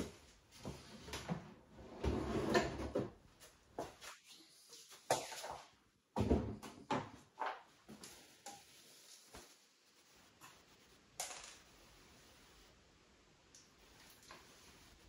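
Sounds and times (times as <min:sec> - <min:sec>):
cabinet knocking and bumping: 0:06.2 - 0:07.1.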